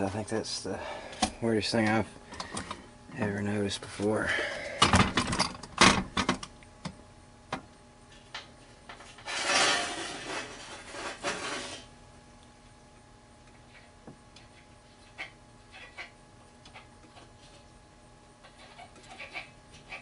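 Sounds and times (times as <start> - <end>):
scraping and rustling: 8.9 - 11.9.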